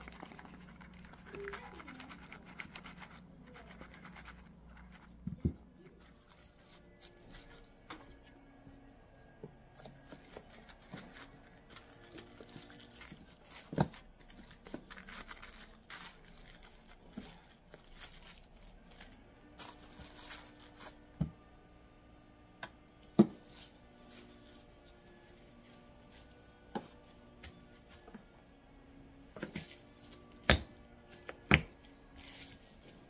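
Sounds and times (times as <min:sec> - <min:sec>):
rustling and crinkling: 0:00.0 - 0:08.1, 0:09.8 - 0:21.1, 0:23.3 - 0:28.2, 0:31.1 - 0:33.0.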